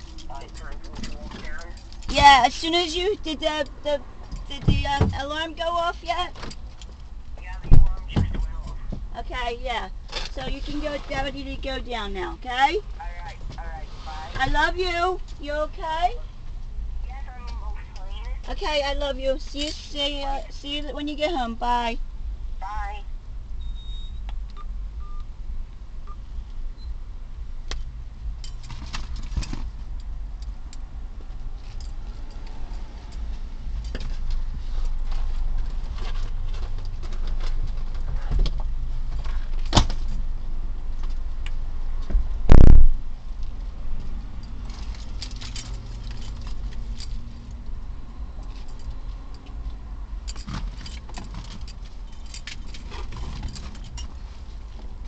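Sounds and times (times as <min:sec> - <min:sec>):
steady low rumble: 0:00.0 - 0:50.4
things clinking and rattling: 0:50.2 - 0:54.7.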